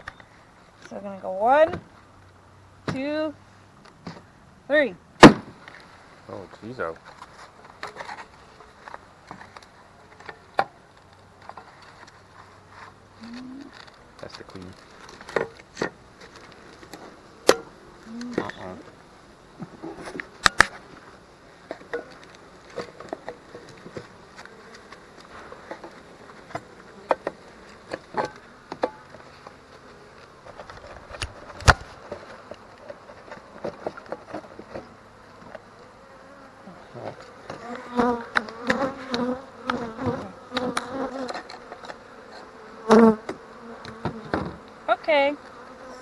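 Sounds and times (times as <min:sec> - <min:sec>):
honey bees buzzing: 0:12.2 - 0:46.0.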